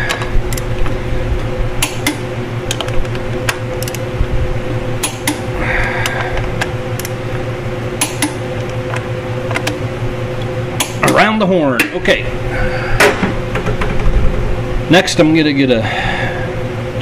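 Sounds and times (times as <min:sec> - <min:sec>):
steady hum: 0:00.0 - 0:17.0
socket wrench metallic clicks: 0:03.8 - 0:04.1, 0:07.0 - 0:07.2.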